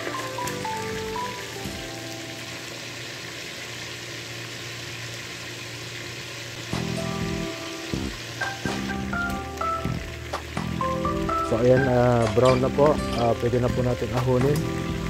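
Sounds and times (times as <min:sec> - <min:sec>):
background music: 0:00.0 - 0:02.6, 0:06.6 - 0:15.0
chicken frying in hot oil: 0:00.0 - 0:15.0.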